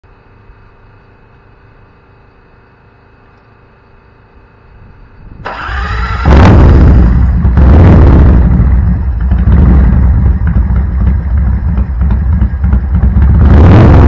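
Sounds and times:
starter cranking: 5.4 - 6.4
motorcycle engine running loudly: 5.4 - 14.0.

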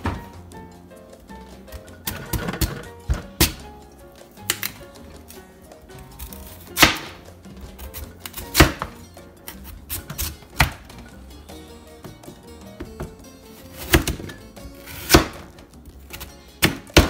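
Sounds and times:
knife chopping on cutting board: 1.7 - 3.6, 6.2 - 11.0, 12.0 - 15.5, 16.1 - 17.0.

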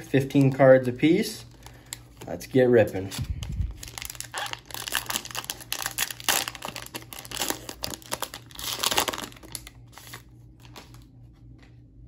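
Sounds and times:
foil wrapper tearing and crinkling: 3.2 - 11.0.

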